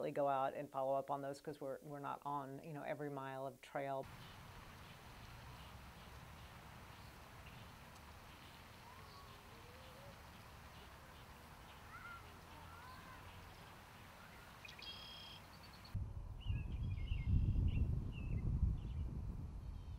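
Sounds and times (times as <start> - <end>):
bird calls and chirps: 4.1 - 19.0
wind rumble on microphone: 15.9 - 19.9.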